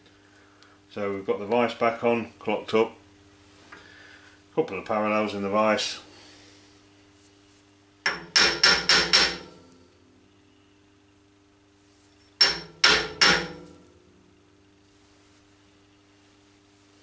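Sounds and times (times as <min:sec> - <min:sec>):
hammer tapping aluminium workpiece: 0:08.1 - 0:09.6, 0:12.4 - 0:13.9.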